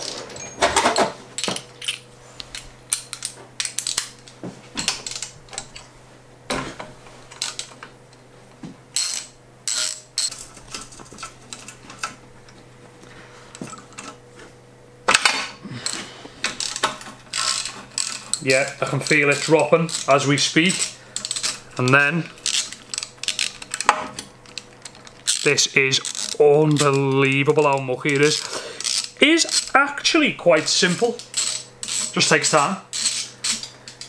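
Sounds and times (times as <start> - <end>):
ratchet wrench clicking: 9.0 - 10.3, 16.6 - 29.8, 30.6 - 34.0.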